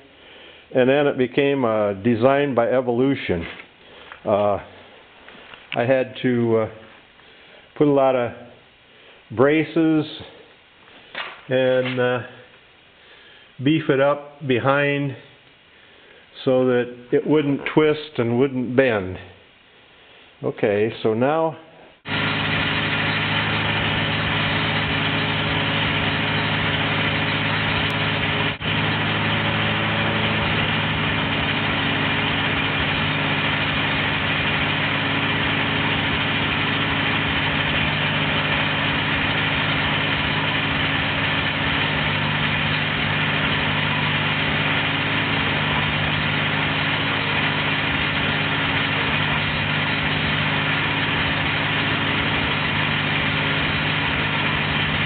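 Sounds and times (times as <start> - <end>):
tractor engine running: 22.0 - 55.0.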